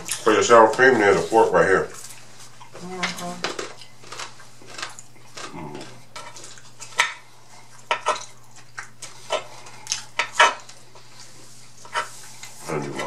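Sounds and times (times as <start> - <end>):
chewing: 1.9 - 11.1.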